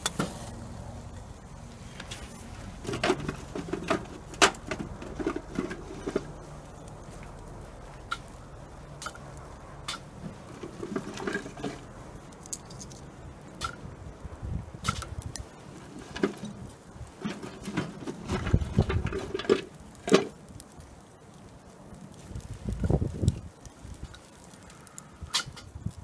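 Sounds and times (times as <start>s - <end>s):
wood fire crackling and popping: 0.0s - 26.0s.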